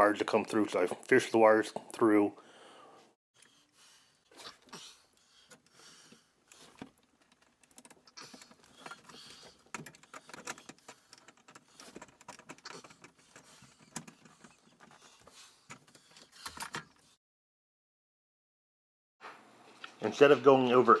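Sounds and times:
cable rustling: 6.4 - 17.2.

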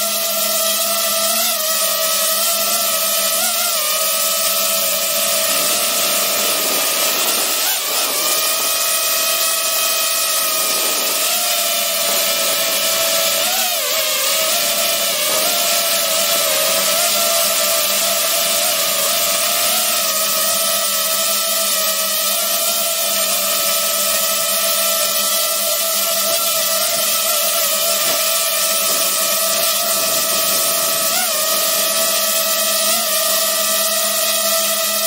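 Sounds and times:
drone propellers whining: 3.7 - 19.4, 25.9 - 34.0.

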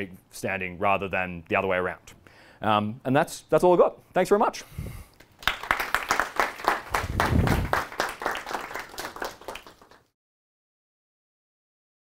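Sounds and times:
audience applauding: 5.3 - 10.1.

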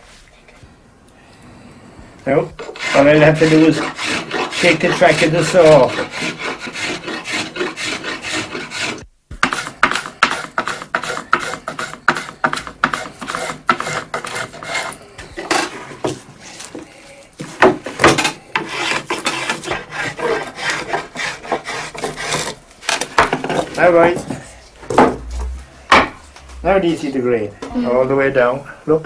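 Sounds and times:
spokeshave scraping wood: 2.5 - 16.8, 17.4 - 27.8.

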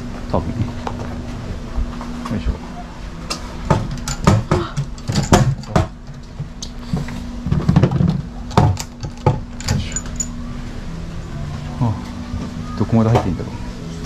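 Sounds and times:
knocks and clicks on wooden locker: 3.7 - 6.0
key jangling: 8.8 - 10.4.

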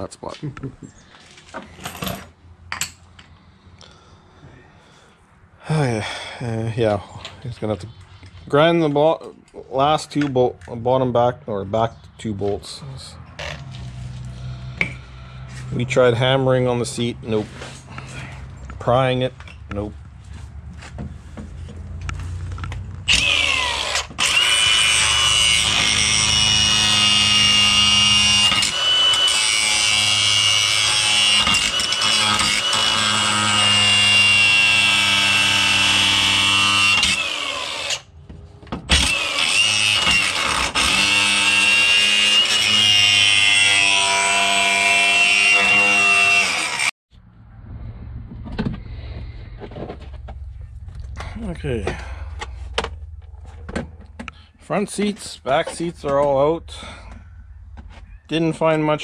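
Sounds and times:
angle grinder whining and grinding: 13.0 - 19.8, 21.6 - 38.2, 38.8 - 54.7.

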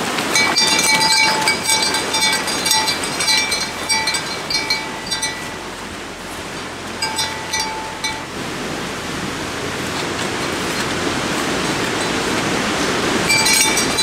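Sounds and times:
cow bell clanking: 0.2 - 8.4, 13.3 - 14.0.

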